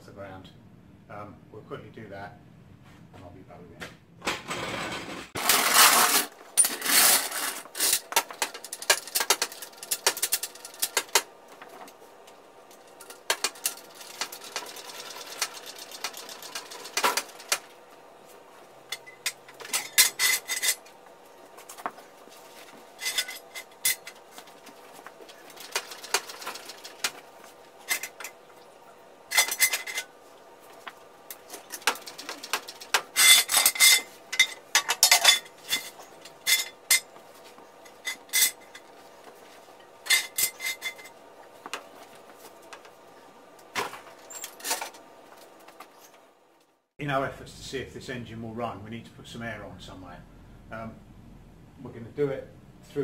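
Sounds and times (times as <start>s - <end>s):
metallic clanks of tools: 23.0s - 24.2s, 29.3s - 30.1s, 31.4s - 37.1s.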